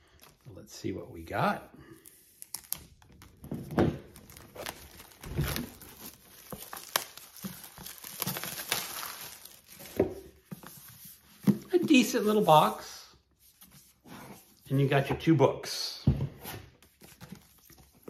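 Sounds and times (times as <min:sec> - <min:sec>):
plastic shrink-wrap crinkling and tearing: 0:02.0 - 0:10.1.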